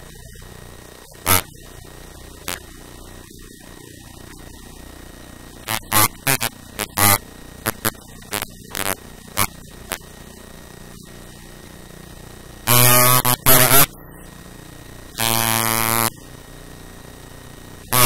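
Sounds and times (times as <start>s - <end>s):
harsh electronic buzz: 0.0s - 18.0s
low steady hum: 0.0s - 18.0s.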